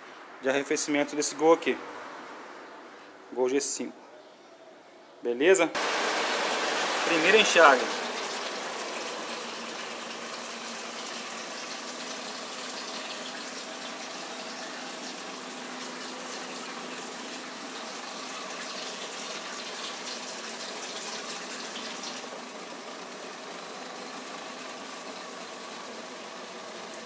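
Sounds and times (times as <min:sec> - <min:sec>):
water gushing into plastic bucket: 0:05.8 - 0:27.0.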